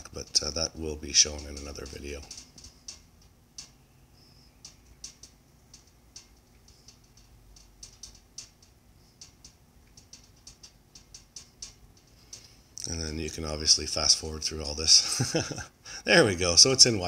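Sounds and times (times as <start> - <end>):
low steady hum: 0.0 - 17.0
faint light clicks: 1.4 - 12.9.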